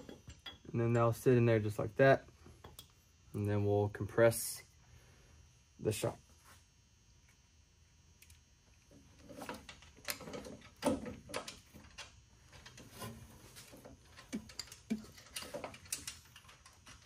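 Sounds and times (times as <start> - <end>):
metal hardware clicking and knocking: 0.0 - 1.2, 14.1 - 17.0.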